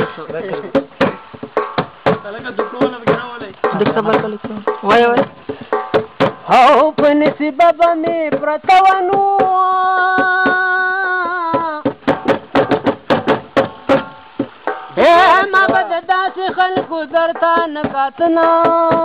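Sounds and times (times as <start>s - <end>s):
quick percussion strikes: 0.0s - 19.0s
person singing: 6.4s - 12.0s, 14.9s - 19.0s.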